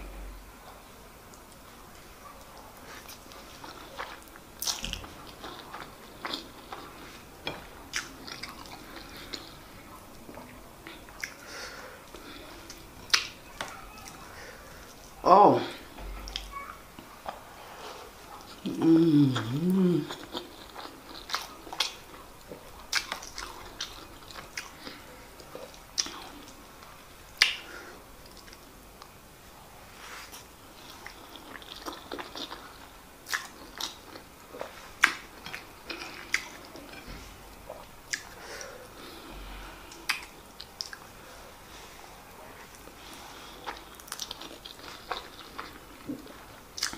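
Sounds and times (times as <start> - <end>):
chewing with wet lip smacks: 37.7 - 38.4.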